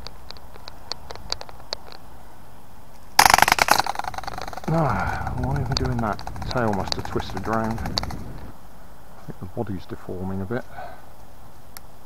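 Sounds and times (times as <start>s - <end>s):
wind rumble on microphone: 4.6s - 8.6s.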